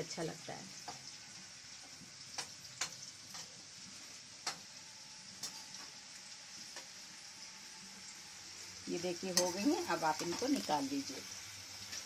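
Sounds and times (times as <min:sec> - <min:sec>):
beans sizzling in hot oil: 0:00.0 - 0:12.0
utensil clicking on pan: 0:02.3 - 0:03.5, 0:04.4 - 0:04.7, 0:09.3 - 0:10.8.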